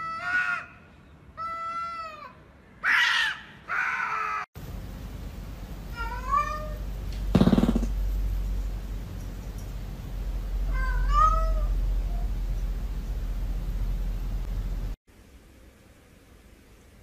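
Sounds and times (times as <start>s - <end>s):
cat yowling: 1.4s - 4.4s, 5.9s - 6.8s, 10.7s - 12.3s.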